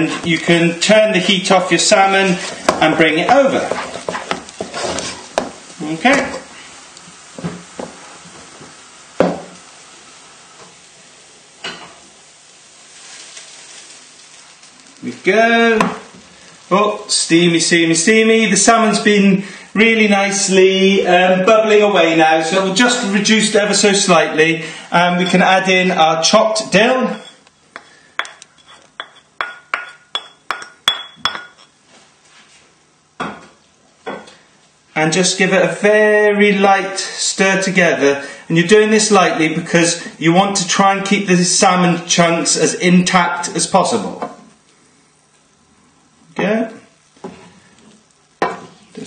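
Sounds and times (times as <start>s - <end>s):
pan sizzling and bubbling: 0.0s - 32.2s, 36.7s - 49.0s
glass clinking: 27.1s - 31.8s.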